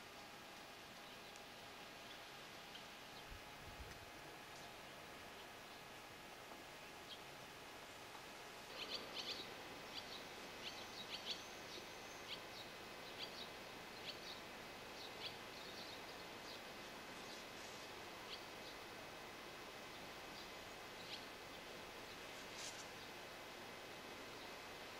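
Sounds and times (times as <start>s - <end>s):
steady hiss: 0.0s - 24.9s
swallows chirping: 8.7s - 14.4s.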